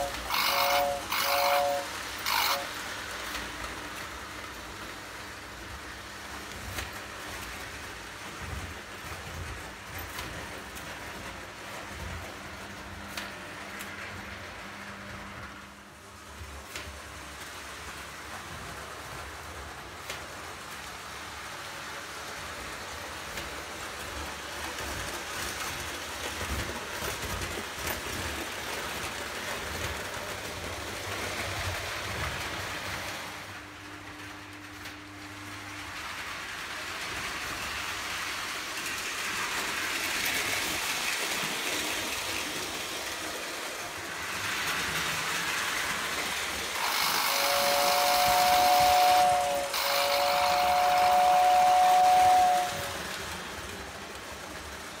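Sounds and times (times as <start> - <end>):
toy train whistle: 0.0 - 2.8, 46.8 - 53.1
toy train rolling rumble: 0.0 - 55.0.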